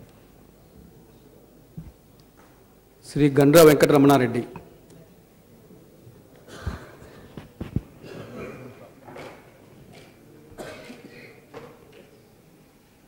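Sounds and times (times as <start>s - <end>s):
low thumps: 1.8s - 2.0s.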